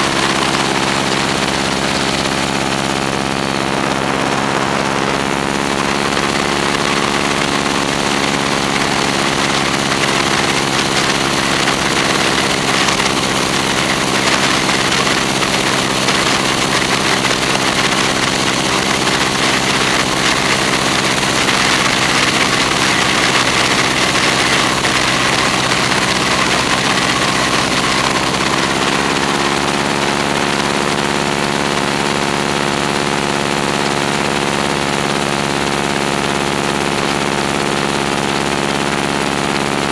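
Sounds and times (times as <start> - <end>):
propeller plane engine droning: 0.0 - 39.9.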